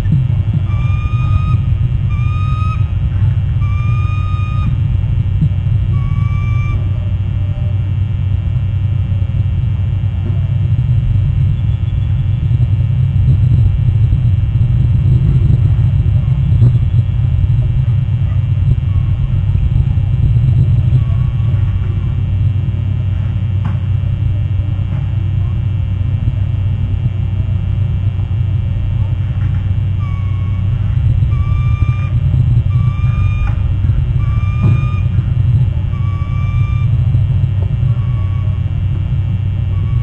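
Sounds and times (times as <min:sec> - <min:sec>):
wind rumble on microphone: 0:00.0 - 0:40.0.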